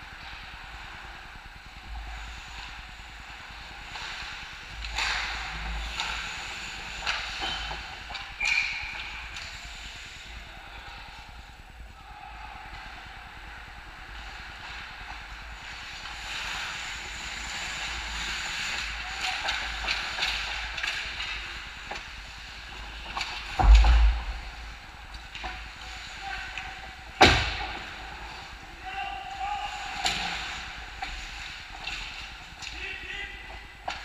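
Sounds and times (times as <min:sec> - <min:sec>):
stick and puck clacks: 0:03.9 - 0:09.6, 0:18.7 - 0:22.2
loud thump: 0:23.6 - 0:24.7.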